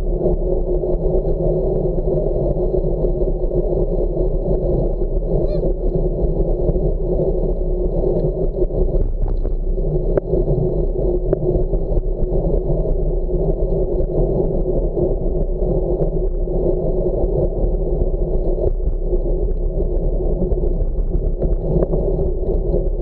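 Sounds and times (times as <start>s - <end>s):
faint squeak: 5.3s - 5.8s.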